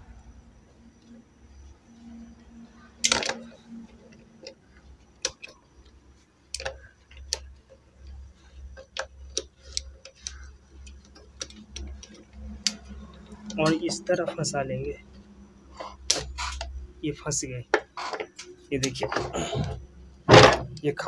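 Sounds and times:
metallic clicks and taps: 5.2 - 13.7.

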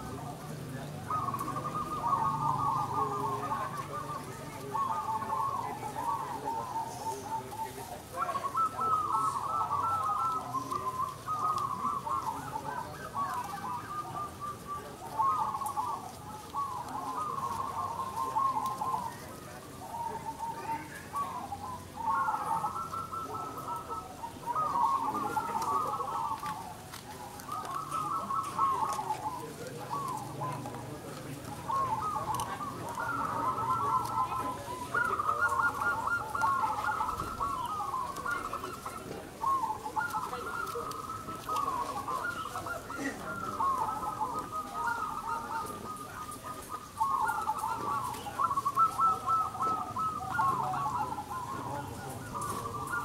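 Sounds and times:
doves cooing: 0.0 - 53.0.

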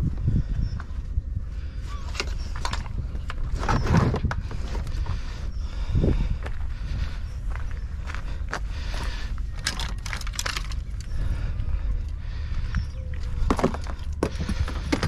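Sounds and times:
steady low rumble: 0.0 - 15.0
fishing rods and reels clattering: 9.3 - 11.4.

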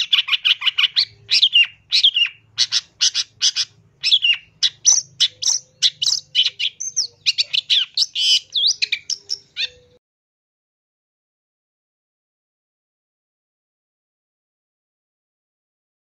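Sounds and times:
bird chattering and whistling: 0.0 - 10.0.

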